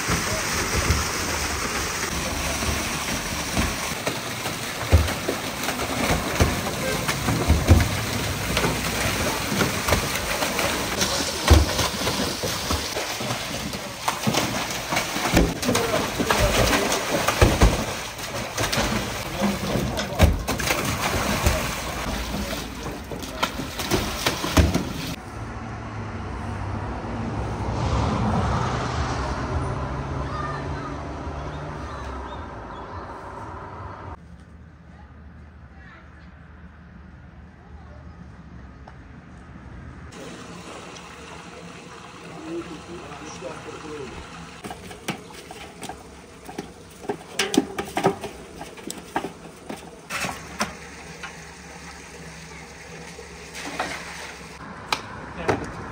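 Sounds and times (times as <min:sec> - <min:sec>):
fish splashing into water: 0:00.0 - 0:25.2
road traffic engine hum: 0:00.0 - 0:55.9
vehicle passing: 0:23.6 - 0:34.2, 0:52.8 - 0:55.9.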